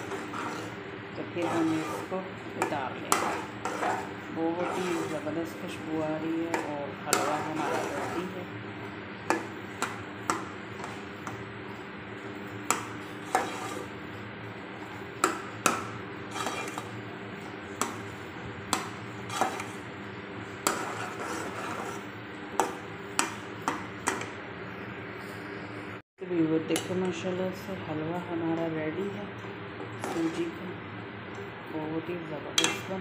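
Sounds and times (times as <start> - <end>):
metal spoon scraping pot: 0.0 - 8.4, 12.7 - 13.9, 16.2 - 17.0, 18.7 - 19.8, 20.6 - 23.3, 29.9 - 30.5
steady hum: 0.0 - 33.0.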